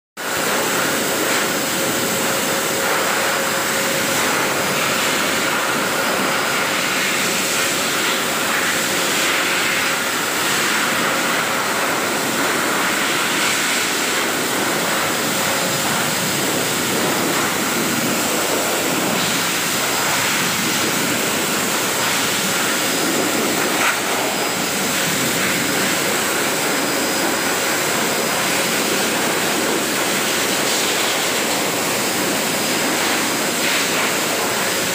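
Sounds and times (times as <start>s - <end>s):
pet dryer blowing air: 0.2s - 34.9s.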